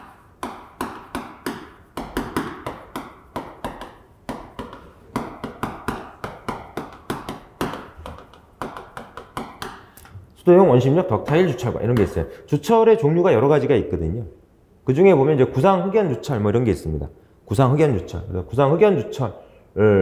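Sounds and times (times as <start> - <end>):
chalk tapping on chalkboard: 0.0 - 10.0, 11.1 - 12.3.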